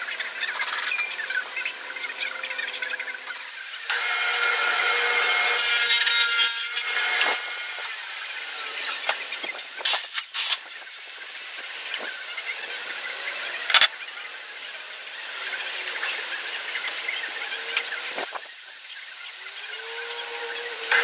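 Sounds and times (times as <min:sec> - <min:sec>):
table saw cutting wood: 0:00.0 - 0:21.0
saw blade spinning down: 0:00.6 - 0:09.4, 0:19.4 - 0:21.0.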